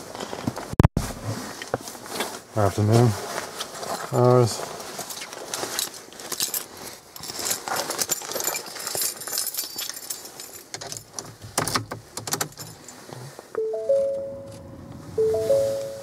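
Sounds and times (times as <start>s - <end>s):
car keys jangling: 7.2s - 13.1s
two-note electronic chime: 13.6s - 16.0s.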